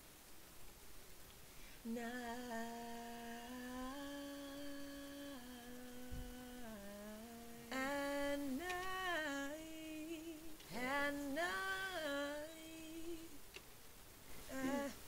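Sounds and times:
woman singing a long low note: 0:01.9 - 0:13.4, 0:14.5 - 0:15.0.

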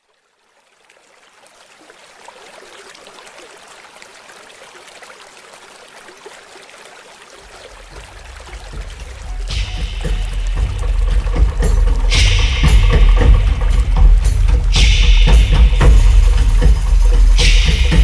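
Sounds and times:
trickling water: 0:00.0 - 0:18.0
low rumble: 0:07.8 - 0:18.0.

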